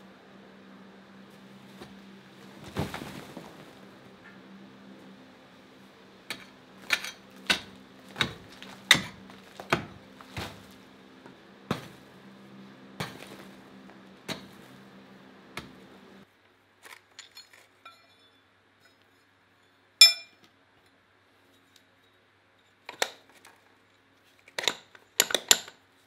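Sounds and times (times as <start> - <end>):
pickaxe striking rock: 6.3 - 10.8
light metal clinks: 17.2 - 19.0, 20.0 - 20.4.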